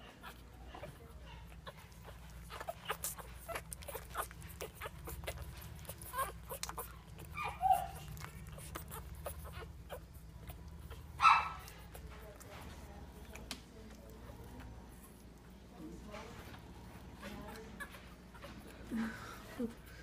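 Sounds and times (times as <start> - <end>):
puppy squeaks and whimpers: 0.0 - 12.6, 16.9 - 18.9
puppies suckling: 0.0 - 20.0.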